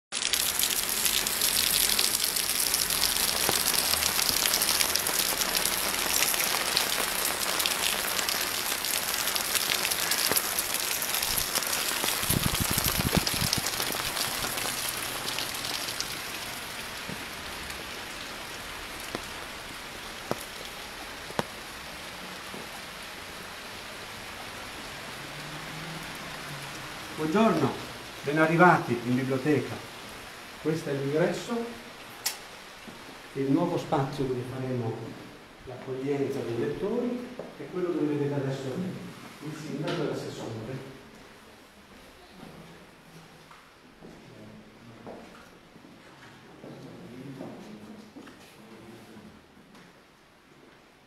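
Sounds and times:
rain hiss: 0.1s - 41.7s.

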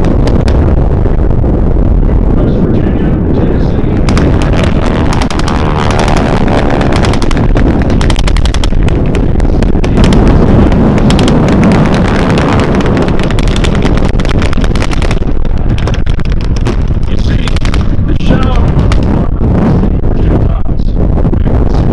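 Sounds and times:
aircraft engines rumbling: 0.0s - 21.9s
pyrotechnic blasts: 0.0s - 21.9s
crackling blank gunfire: 4.0s - 18.1s.

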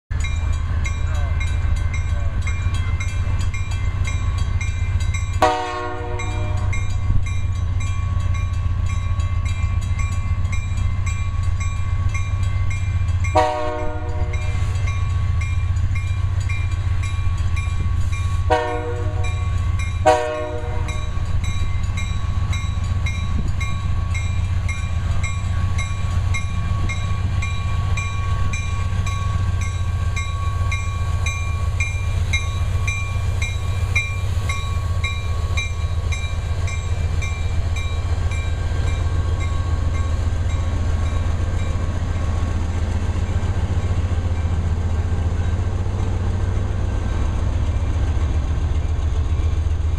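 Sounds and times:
crossing signal bell ringing: 0.1s - 48.3s
diesel locomotives rumbling: 0.1s - 49.9s
locomotive air horn blasts: 5.4s - 6.7s, 13.4s - 14.6s, 18.5s - 19.4s, 20.0s - 21.1s.

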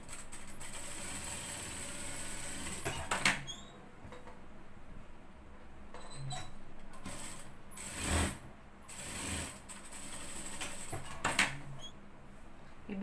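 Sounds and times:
sewing machine stitching fabric: 7.0s - 11.6s.

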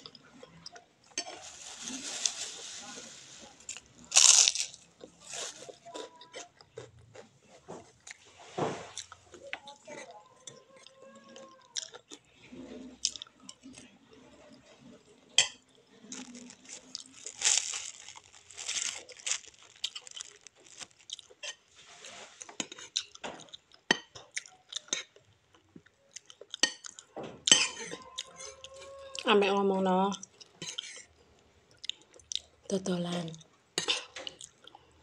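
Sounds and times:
person chewing crunchy cracker: 3.4s - 8.3s, 8.9s - 12.3s, 12.9s - 13.9s, 15.4s - 29.3s, 30.1s - 31.1s, 31.7s - 32.6s, 33.8s - 35.0s.

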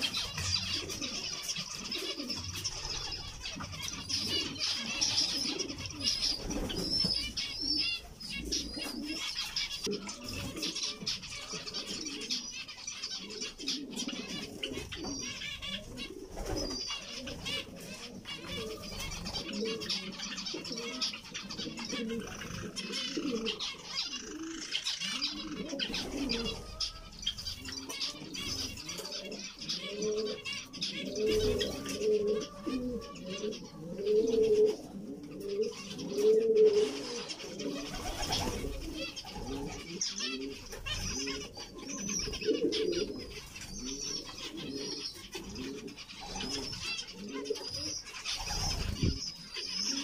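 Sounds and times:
birds chirping and twittering: 0.0s - 50.0s
low cooing: 21.6s - 27.0s, 31.0s - 46.6s.

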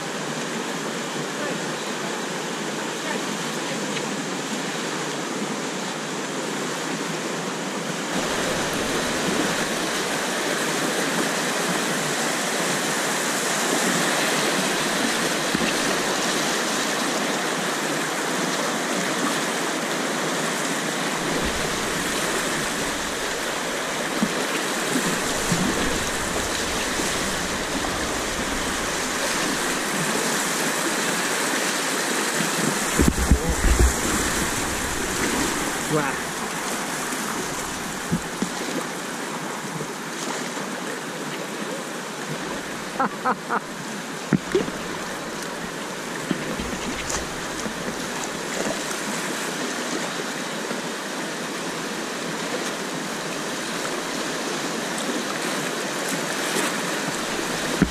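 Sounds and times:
whitewater rapids rushing: 0.0s - 57.9s.

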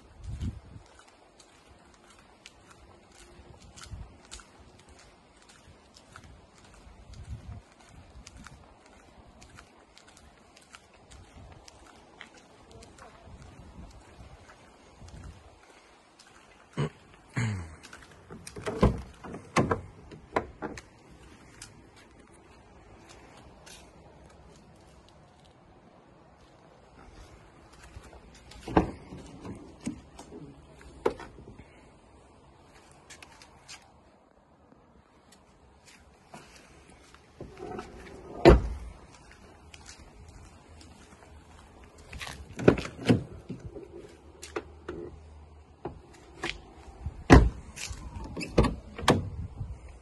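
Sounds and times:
car door knocks swinging open: 47.3s - 47.6s.

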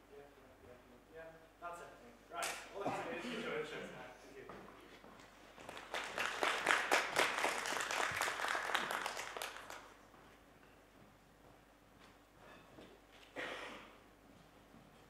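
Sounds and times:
audience applauding: 5.6s - 10.0s.

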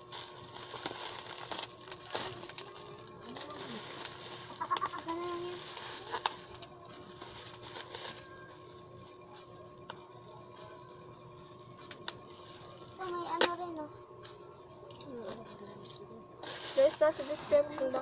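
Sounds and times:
plastic packaging rustling: 0.0s - 10.0s, 16.4s - 18.0s
faint steady hum: 0.0s - 18.0s.

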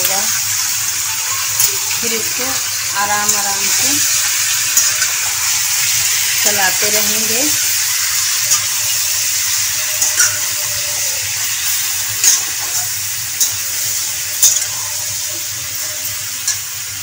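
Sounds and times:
chicken sizzling in hot oil: 0.0s - 17.0s
spatula clicking against pan: 10.0s - 10.4s.

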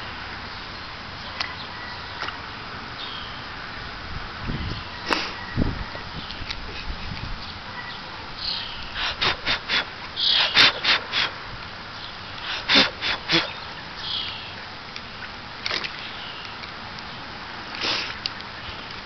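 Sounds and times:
cat sniffing: 9.0s - 11.3s, 12.4s - 13.6s.

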